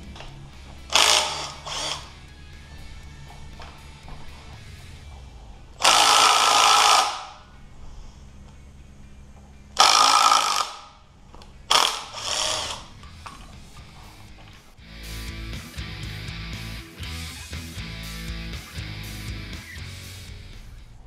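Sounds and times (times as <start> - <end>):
impact driver hammering: 0.9 - 2.0, 5.8 - 7.3.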